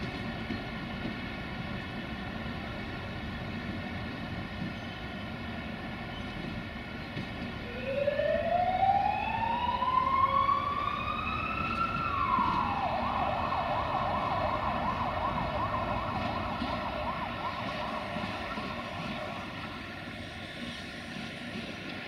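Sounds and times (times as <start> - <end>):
emergency vehicle siren: 7.6 - 21.7.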